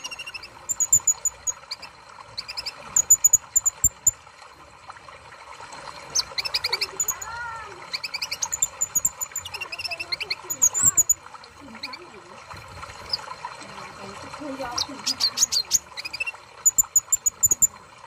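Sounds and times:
bird chirping: 0.0s - 4.1s, 7.9s - 11.2s.

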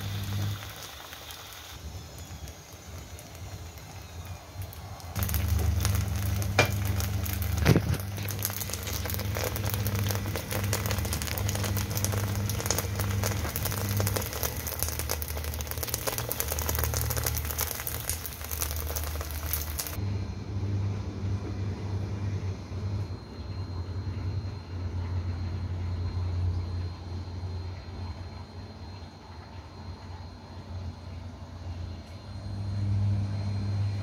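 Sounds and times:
food sizzling in hot oil: 0.0s - 20.0s
steady low hum: 1.8s - 34.0s.

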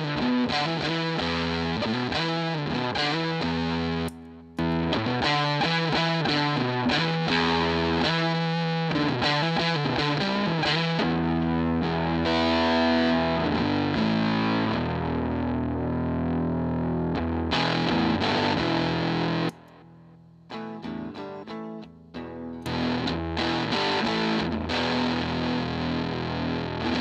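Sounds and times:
distorted electric guitar: 0.0s - 27.0s
quiet picked guitar notes: 0.0s - 27.0s.

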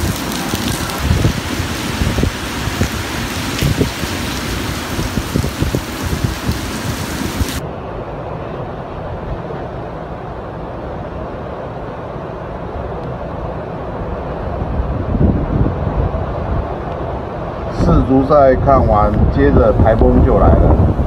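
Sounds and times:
heavy rain pouring: 0.0s - 7.6s
storm wind rushing: 0.0s - 21.0s
wind gusts buffeting microphone: 0.0s - 21.0s.

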